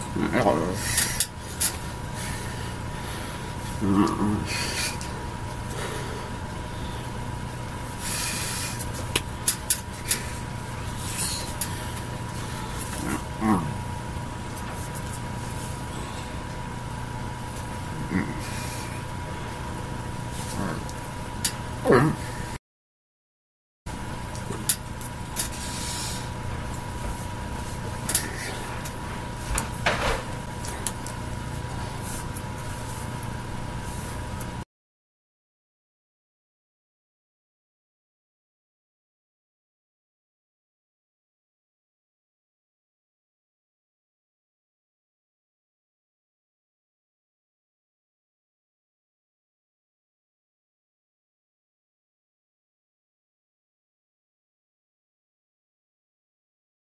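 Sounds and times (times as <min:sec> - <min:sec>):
electrical hum and hiss: 0:00.0 - 0:22.6, 0:23.9 - 0:34.6.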